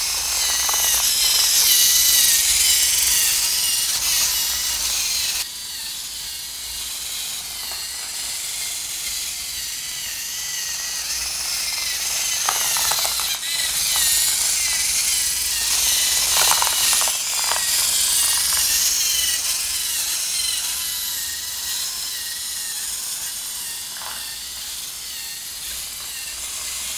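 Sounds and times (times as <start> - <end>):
short rattles: 0.0 - 4.2, 10.8 - 19.8
robot servo motors whining: 0.0 - 26.9.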